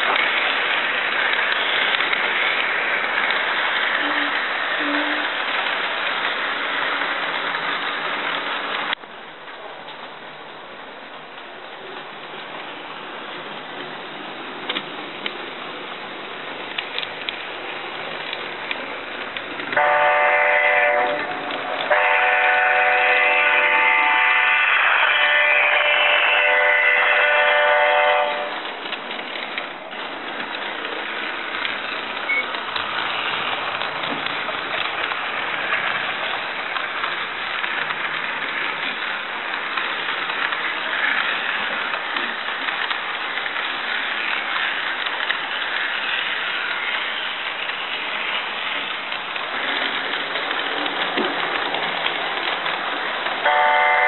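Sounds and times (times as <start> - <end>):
model train whirring: 0.0 - 9.0, 11.8 - 54.0
wheels clicking on rails: 0.0 - 54.0
diesel air horn: 19.8 - 21.3, 21.9 - 28.6, 53.4 - 54.0
fine rapid clicking: 28.6 - 53.4.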